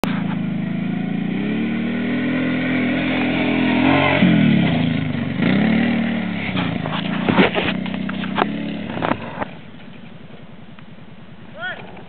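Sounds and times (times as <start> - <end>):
quad engine revving: 0.0 - 9.6.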